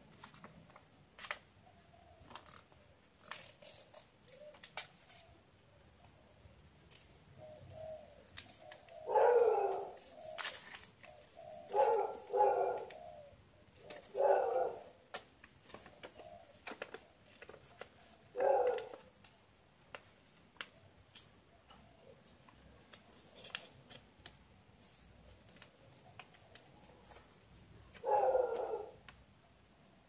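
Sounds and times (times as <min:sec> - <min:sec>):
paper folding and creasing: 0:00.1 - 0:01.4, 0:02.3 - 0:05.4, 0:08.3 - 0:13.0, 0:15.1 - 0:19.3, 0:19.9 - 0:21.3, 0:22.8 - 0:29.2
dove cooing: 0:04.2 - 0:04.6, 0:07.3 - 0:15.1, 0:15.8 - 0:19.1, 0:21.5 - 0:22.9, 0:28.0 - 0:29.0.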